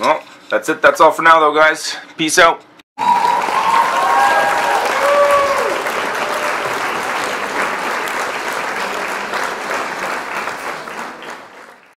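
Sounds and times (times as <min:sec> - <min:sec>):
crowd clapping: 0:03.0 - 0:12.0.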